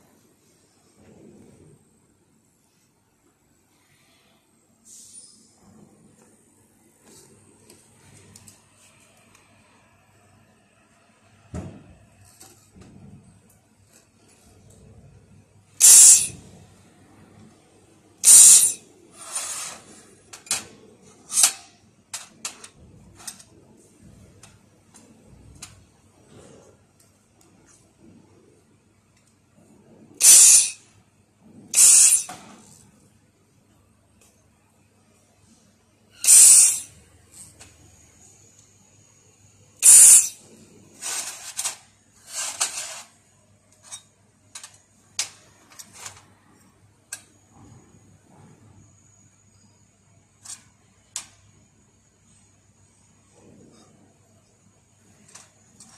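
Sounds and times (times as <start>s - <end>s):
laser welding gun hissing: 15.8s - 16.4s, 18.2s - 19.8s, 30.2s - 30.8s, 31.8s - 32.3s, 36.2s - 36.9s, 39.8s - 40.4s
metal plates clinking: 15.8s - 16.4s, 18.2s - 18.8s, 30.2s - 30.8s, 31.8s - 32.4s, 36.2s - 36.9s, 39.8s - 40.4s
steel sheets clinking and knocking: 15.8s - 16.4s, 18.2s - 22.6s, 30.2s - 30.8s, 31.8s - 32.5s, 36.2s - 36.9s, 39.8s - 40.4s.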